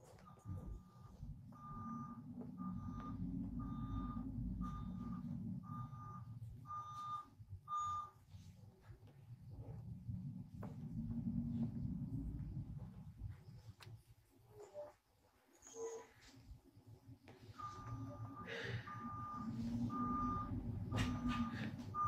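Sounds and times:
electronic beeping: 0.1s - 8.2s, 17.6s - 22.0s
low rumble: 0.5s - 7.0s, 9.4s - 13.8s, 17.6s - 22.0s.

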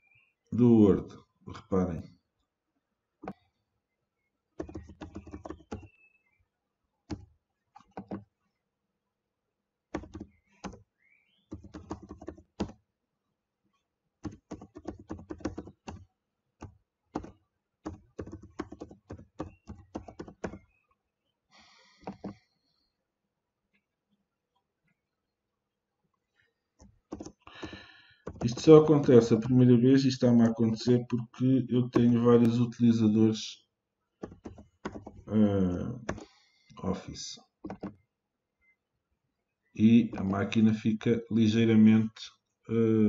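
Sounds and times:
computer keyboard typing: 4.6s - 5.9s, 7.8s - 8.2s, 10.0s - 10.8s, 11.5s - 12.8s, 14.2s - 16.0s, 16.6s - 20.6s, 22.0s - 22.4s, 27.1s - 29.5s, 34.2s - 35.3s, 36.0s - 36.3s, 37.6s - 38.0s.

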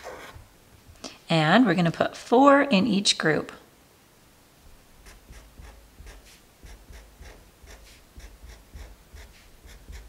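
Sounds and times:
marker scratching on paper: 5.0s - 10.0s.

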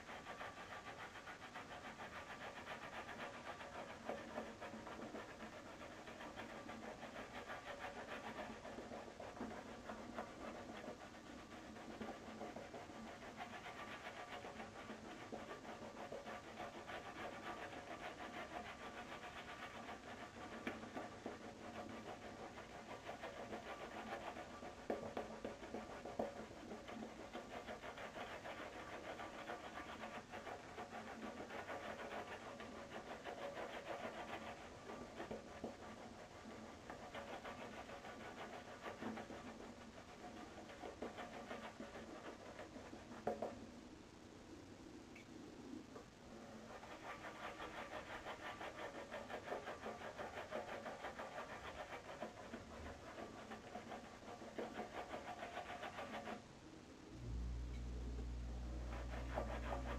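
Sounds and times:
shaving brush swishing lather: 46.6s - 56.4s, 58.7s - 59.9s.

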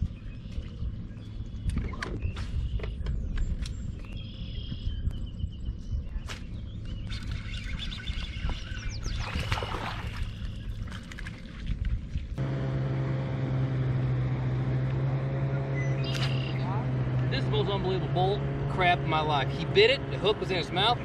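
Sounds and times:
small birds chirping: 0.0s - 11.2s, 15.5s - 18.3s
wind on microphone: 0.0s - 12.4s
electric motor hum: 12.4s - 15.6s.

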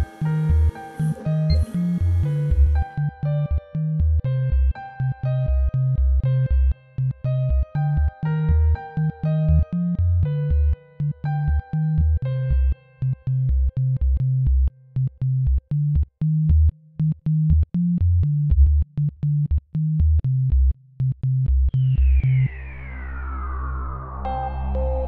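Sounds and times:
falling synth sweep: 0.0s - 3.1s, 21.8s - 25.0s
sustained low drone: 0.0s - 4.6s, 21.7s - 25.0s
electronic music with synth bass: 0.0s - 6.6s, 21.7s - 25.0s.

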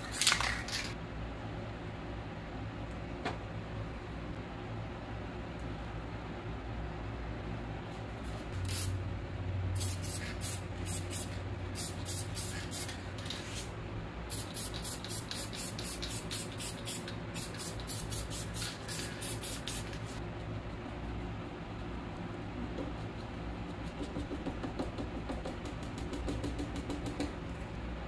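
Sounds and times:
spray paint can hissing: 0.0s - 0.9s, 8.6s - 8.9s, 9.8s - 13.7s, 14.3s - 20.2s.

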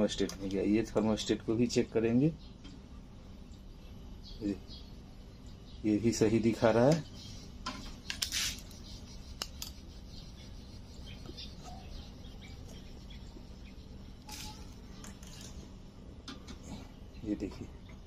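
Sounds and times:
low steady hum: 0.0s - 18.0s
clicks and rustles of small parts: 14.2s - 15.7s.

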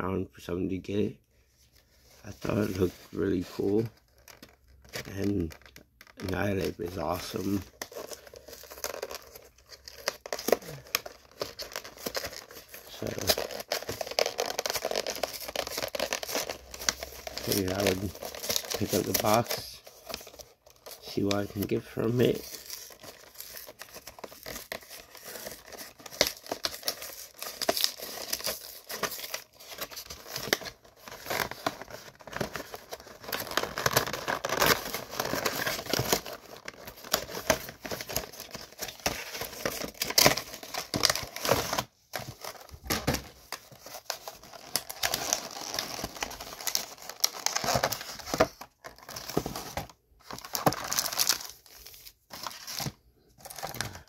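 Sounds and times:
packaging crinkling and tearing: 2.3s - 54.0s.

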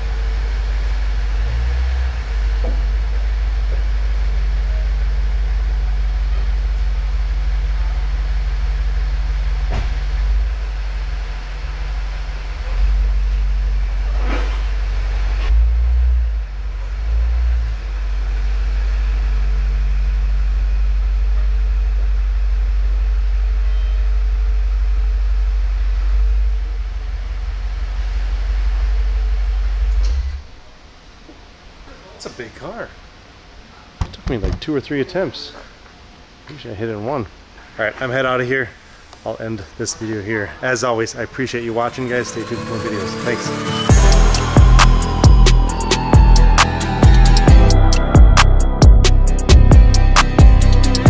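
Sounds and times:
car engine running at low speed: 0.0s - 31.4s.

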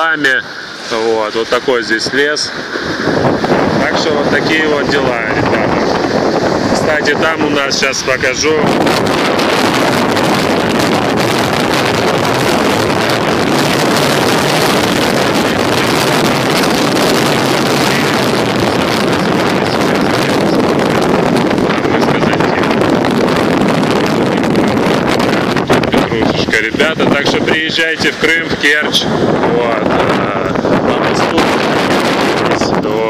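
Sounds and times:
waves breaking on shore: 0.0s - 33.0s
wind on microphone: 0.0s - 33.0s.

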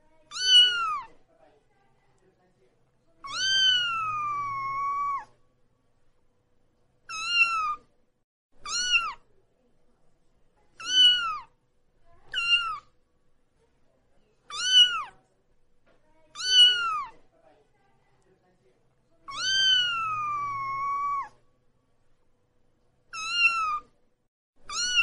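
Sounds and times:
kitten meowing: 0.3s - 1.1s, 3.2s - 5.3s, 7.1s - 7.9s, 8.6s - 9.2s, 10.8s - 11.5s, 12.3s - 12.9s, 14.5s - 15.2s, 16.4s - 17.1s, 19.3s - 21.4s, 23.1s - 23.9s, 24.7s - 25.0s.

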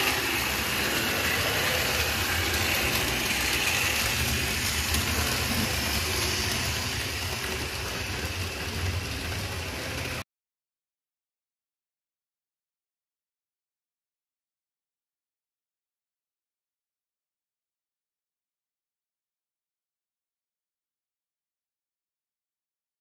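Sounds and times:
model train running on track: 0.0s - 10.2s.

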